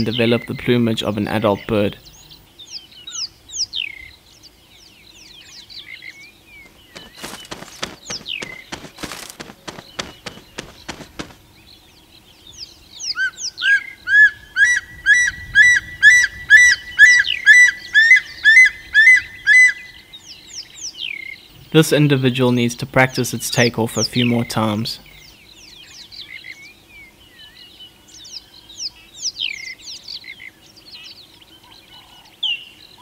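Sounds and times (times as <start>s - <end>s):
soft wing flaps: 6.6s - 11.5s
thin falling chirps: 6.7s - 11.4s.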